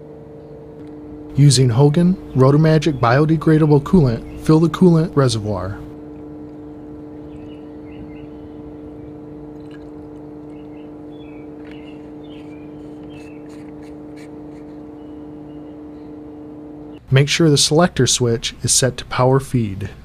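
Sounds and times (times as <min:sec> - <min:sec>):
electrical hum: 0:00.0 - 0:20.0
liquid gurgling: 0:08.8 - 0:13.2.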